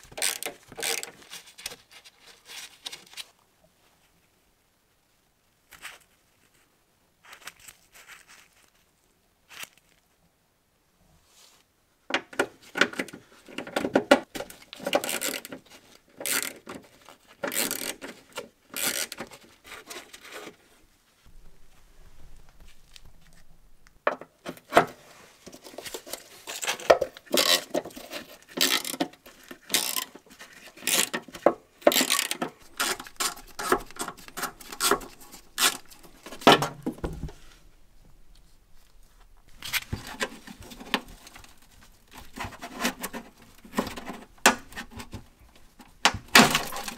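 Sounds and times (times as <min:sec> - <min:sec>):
hand ratchet clicking: 0:29.7 - 0:30.1.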